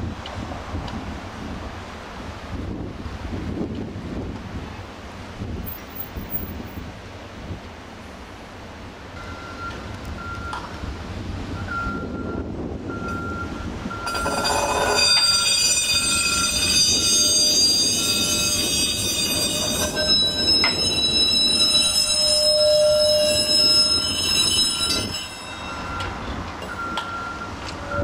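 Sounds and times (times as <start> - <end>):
streetcar wheels squealing on rails: 5.6 - 6.8, 11.6 - 28.0
short beep: 19.4 - 28.0.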